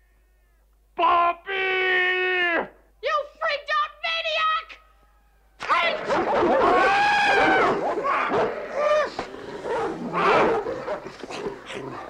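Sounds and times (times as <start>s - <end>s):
man screaming: 5.7s - 9.2s
dog snarling and barking: 6.0s - 12.0s.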